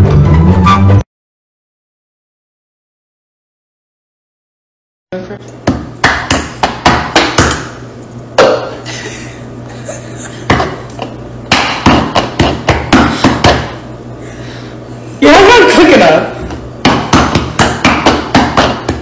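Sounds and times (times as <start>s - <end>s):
hands knocking on stone countertop: 5.6s - 7.7s, 10.5s - 13.8s, 16.5s - 19.0s.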